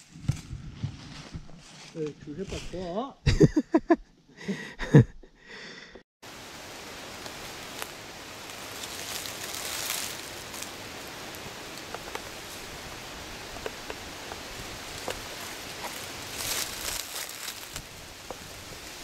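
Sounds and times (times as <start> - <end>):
dry leaves rustling: 1.0 - 2.9, 6.3 - 19.0
faint ticks and crackles: 7.1 - 19.0.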